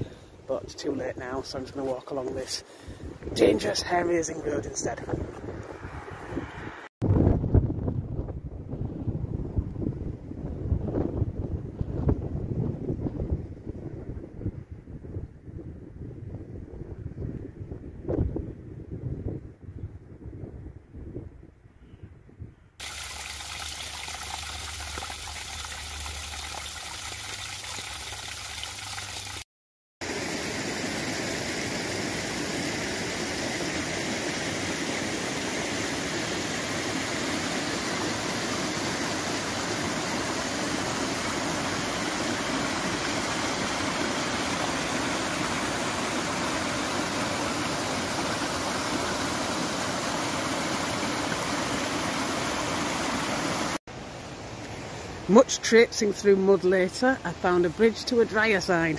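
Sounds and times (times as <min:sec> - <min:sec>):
stream rushing over rocks: 0:22.8 - 0:29.4, 0:30.0 - 0:58.7.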